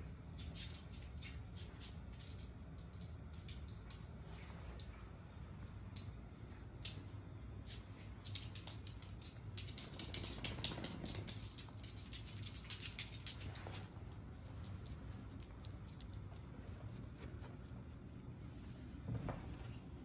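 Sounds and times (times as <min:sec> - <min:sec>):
dog claws clicking on stone floor: 0:05.9 - 0:17.1.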